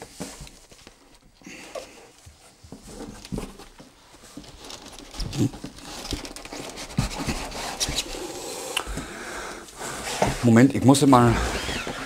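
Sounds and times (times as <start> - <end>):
cardboard rustling and scraping: 1.9 - 8.3.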